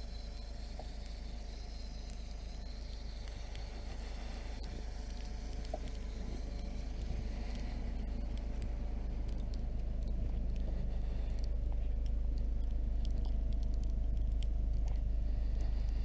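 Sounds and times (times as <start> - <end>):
truck engine running at low revs: 0.0 - 16.0.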